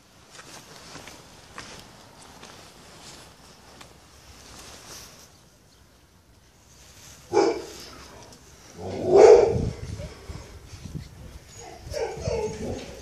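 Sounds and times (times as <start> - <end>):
puppies barking: 7.3 - 7.9, 8.8 - 9.7, 11.6 - 13.0.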